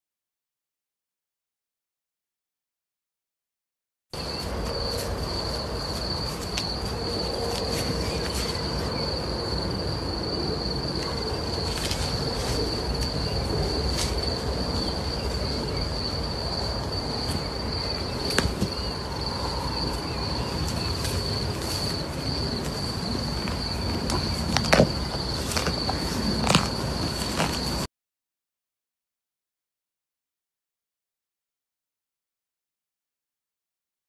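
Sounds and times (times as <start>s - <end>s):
insect trilling: 4.2s - 27.8s.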